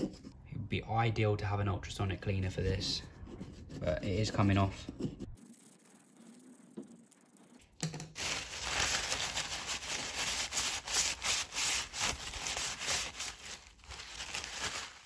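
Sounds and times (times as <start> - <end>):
paper towel scrubbing metal bowl: 5.3 - 7.6, 8.2 - 15.0.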